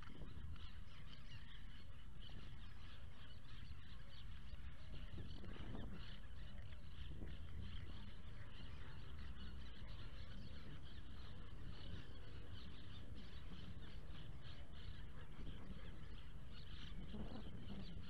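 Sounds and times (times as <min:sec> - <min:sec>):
birds chirping: 0:00.0 - 0:18.0.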